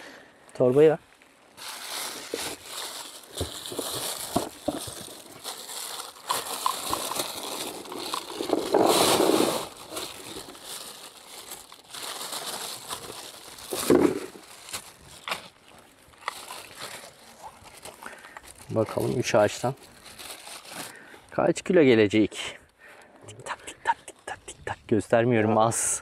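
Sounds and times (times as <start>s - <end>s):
plastic bag rustling: 0.6s - 21.3s.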